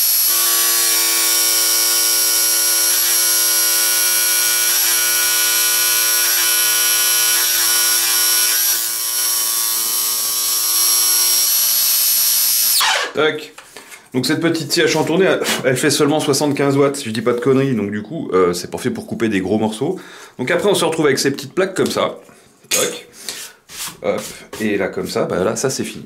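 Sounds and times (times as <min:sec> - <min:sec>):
scroll saw running: 0:00.0 - 0:13.2.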